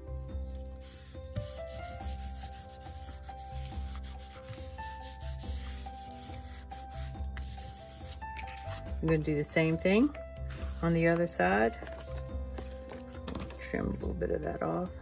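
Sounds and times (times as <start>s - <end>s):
soft background music: 0.0s - 15.0s
hands rubbing paper: 0.5s - 8.9s, 10.5s - 11.0s.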